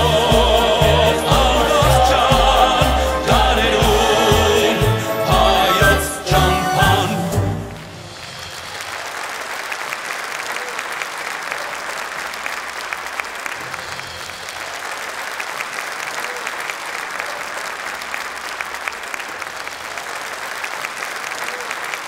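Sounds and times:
band playing: 0:00.0 - 0:09.1
audience applauding: 0:00.0 - 0:22.0.

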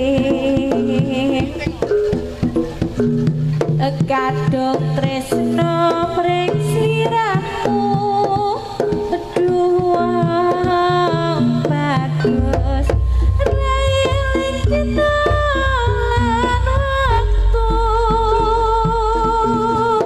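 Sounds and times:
drumming and percussion: 0:00.0 - 0:20.0
high melody with sliding notes: 0:11.2 - 0:19.6.

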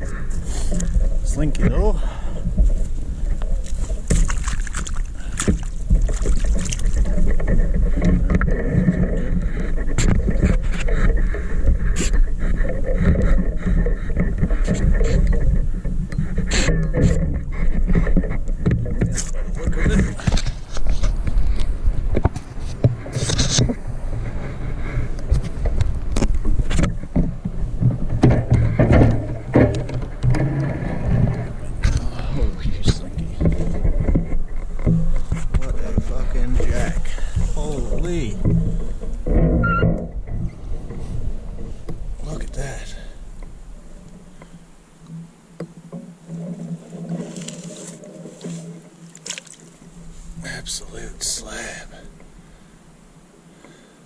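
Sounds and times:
shallow water splashing: 0:01.9 - 0:12.4, 0:47.0 - 0:50.5.

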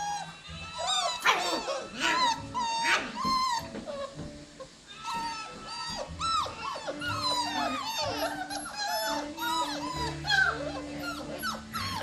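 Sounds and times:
puppies whining and yelping: 0:00.0 - 0:12.0.

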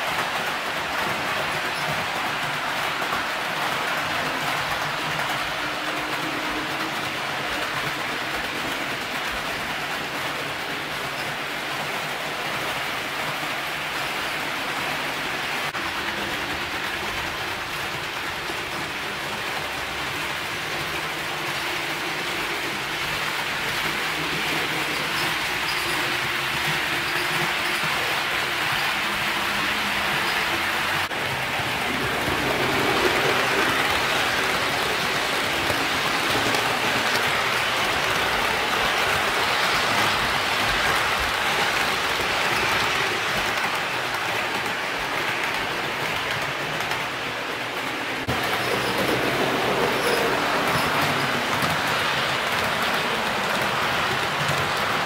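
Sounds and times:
model train wheels whirring: 0:00.0 - 0:55.0.

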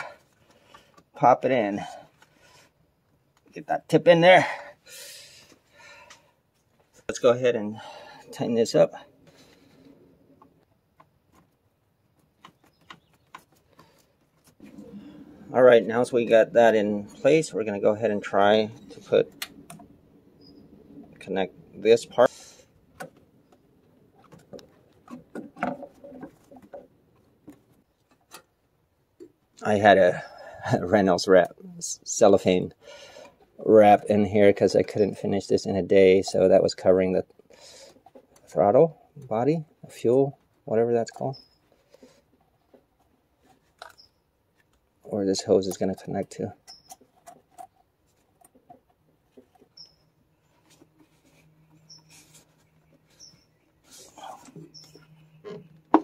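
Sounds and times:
hands handling hoses and fittings: 0:00.0 - 0:01.2, 0:09.2 - 0:30.1, 0:37.2 - 0:56.0.

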